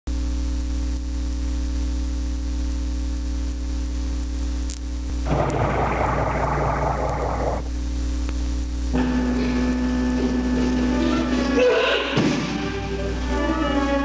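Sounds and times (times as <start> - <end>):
electrical hum: 0.1 - 11.7
rushing noise: 5.1 - 7.7.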